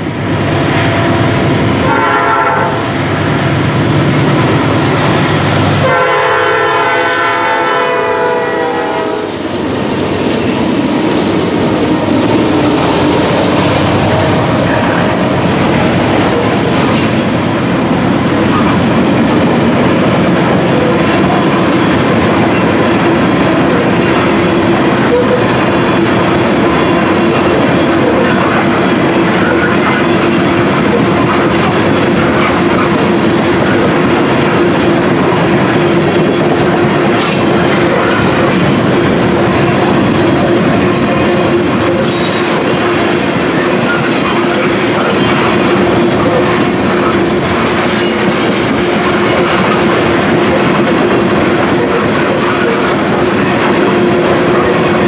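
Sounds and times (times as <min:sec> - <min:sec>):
locomotive air horn blasts: 0:01.8 - 0:02.8, 0:05.8 - 0:09.4
train wheels clacking over rail joints: 0:09.3 - 0:55.0.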